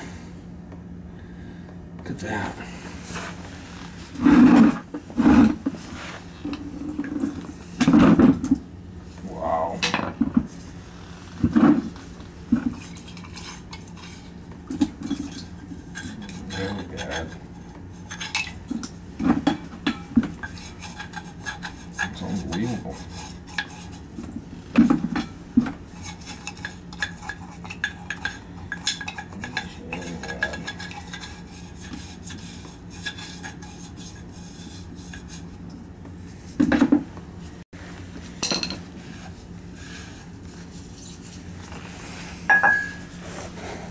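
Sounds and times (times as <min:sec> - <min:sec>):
low steady hum: 0:00.0 - 0:43.9
metal tools clinking and scraping: 0:38.4 - 0:38.9.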